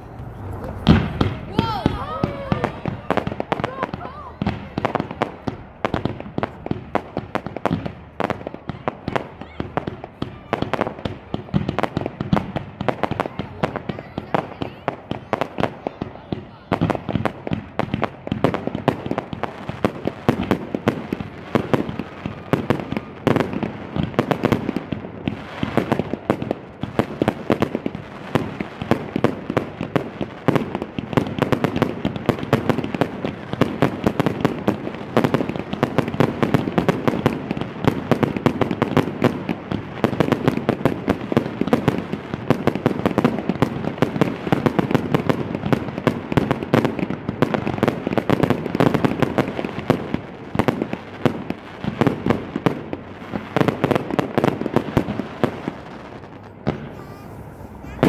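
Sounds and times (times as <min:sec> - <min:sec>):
fireworks bursts and crackling: 0:00.0 - 0:58.0.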